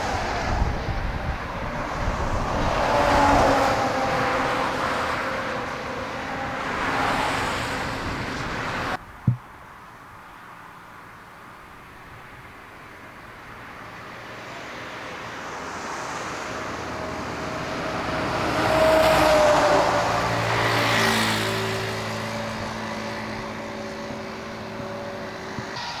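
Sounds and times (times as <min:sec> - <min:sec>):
steady engine hum: 0:12.9 - 0:26.0.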